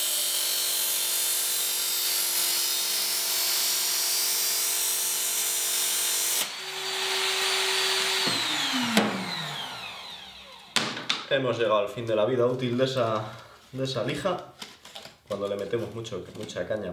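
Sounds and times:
motor hum winding down: 6.5 - 10.8.

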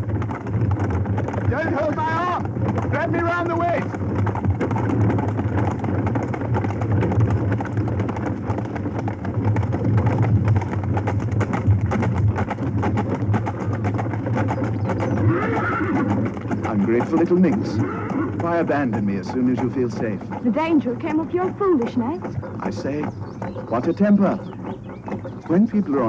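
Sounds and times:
cart wheels rattling: 0.0 - 26.0
galloping hooves: 0.0 - 26.0.

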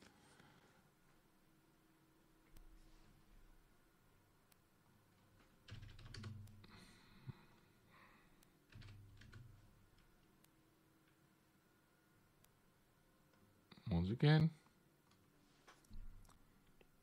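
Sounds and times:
computer keyboard typing: 5.4 - 6.7, 8.6 - 10.2.

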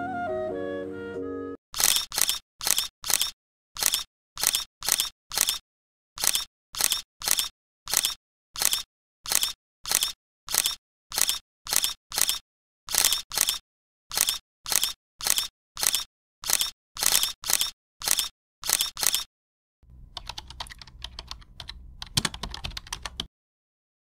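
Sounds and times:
short sharp clicks: 1.8 - 5.6, 6.2 - 19.3.

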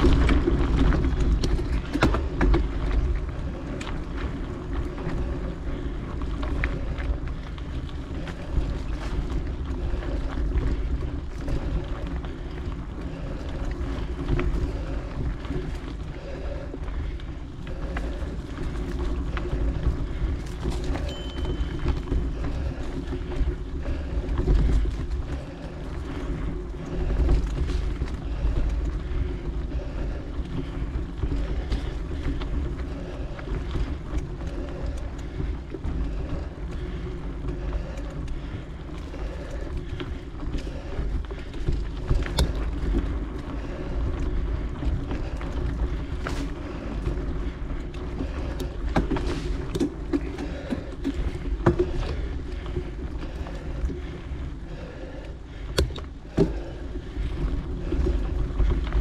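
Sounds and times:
wind rushing over microphone: 0.0 - 21.7
bike clicks and rattles: 0.0 - 59.0
bike tyre and drivetrain noise: 0.0 - 59.0.

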